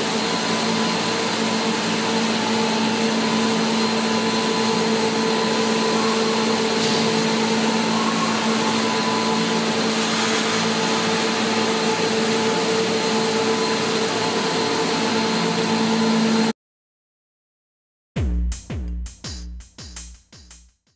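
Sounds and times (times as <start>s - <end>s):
shot-blasting machine running: 0.0s - 16.5s.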